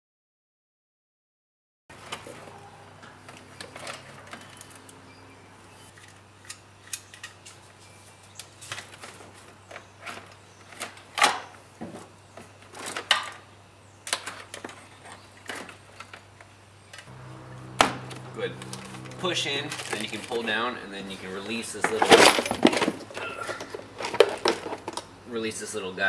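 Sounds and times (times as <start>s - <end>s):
low hum: 17.1s - 21.4s.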